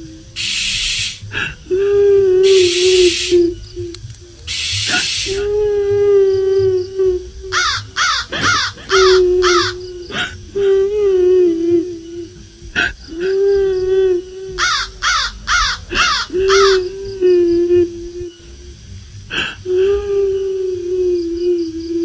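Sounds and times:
woman wailing: 0:05.3 - 0:12.4.

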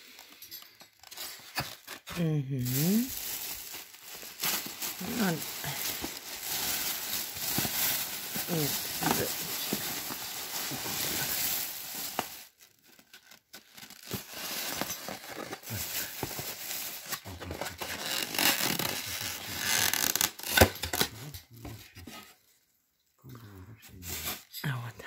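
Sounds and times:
plastic bag rustling: 0:00.0 - 0:21.0.

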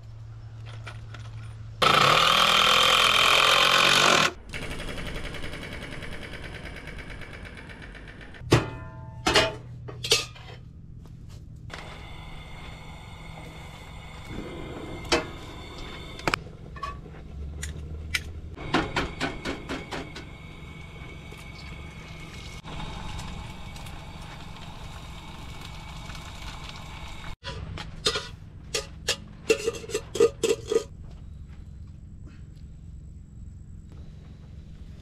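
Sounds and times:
utensils clinking on a skillet: 0:27.4 - 0:30.9.

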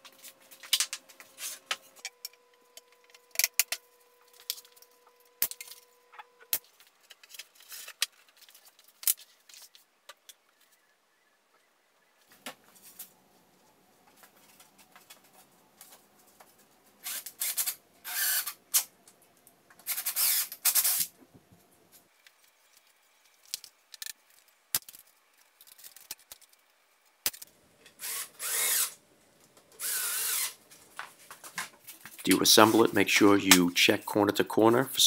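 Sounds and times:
cordless drill driving screws: 0:17.0 - 0:18.6, 0:19.9 - 0:21.0, 0:28.0 - 0:29.0, 0:29.8 - 0:30.6.

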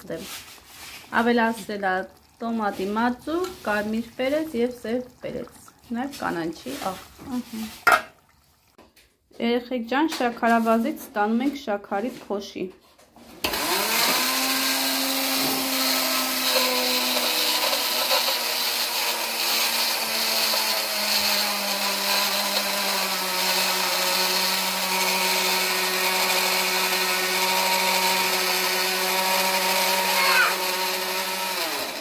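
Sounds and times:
electric grinder motor whine: 0:13.5 - 0:32.0.

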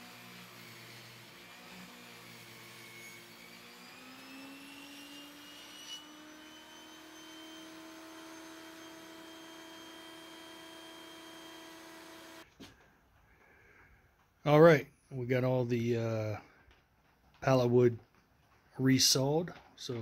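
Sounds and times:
table saw motor whine: 0:00.0 - 0:12.4.

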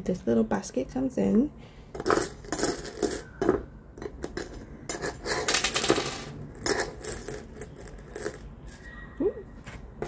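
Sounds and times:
charms clinking in metal wok: 0:04.2 - 0:08.4.

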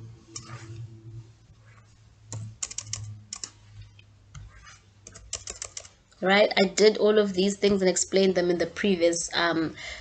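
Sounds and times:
keyboard typing: 0:02.3 - 0:06.0.

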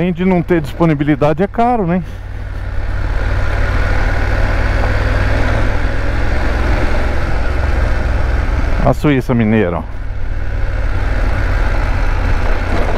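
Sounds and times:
tyres on dirt road: 0:00.0 - 0:12.9
motorcycle engine pulling: 0:11.8 - 0:12.9.

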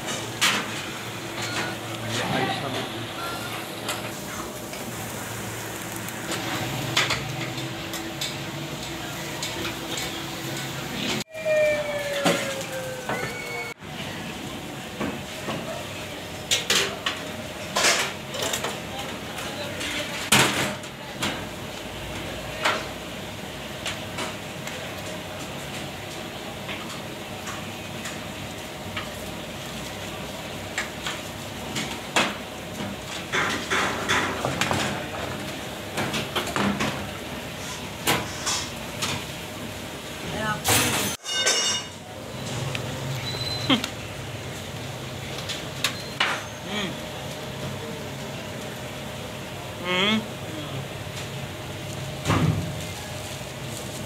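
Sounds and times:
fish sizzling on charcoal grill: 0:02.9 - 0:13.6, 0:21.4 - 0:34.2, 0:46.4 - 0:54.0.

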